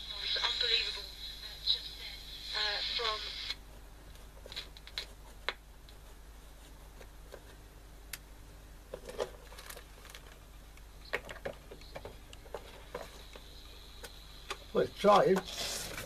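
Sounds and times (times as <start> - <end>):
low steady hum: 0.0 - 16.0
radio clicks and crackles: 10.1 - 15.5.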